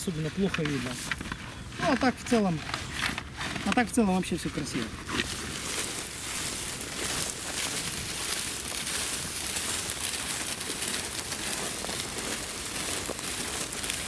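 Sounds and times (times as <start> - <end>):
footsteps crunching through stubble: 0.0 - 14.0.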